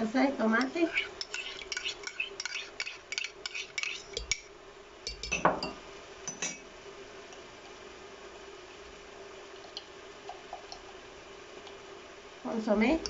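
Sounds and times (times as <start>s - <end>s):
utensil scraping and clinking: 0.6s - 4.5s.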